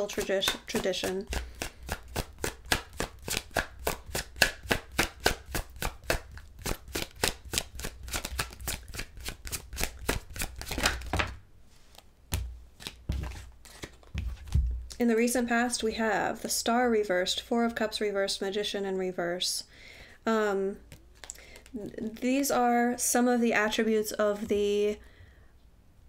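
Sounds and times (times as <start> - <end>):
cards being shuffled: 0.0 - 15.0, 20.8 - 22.2.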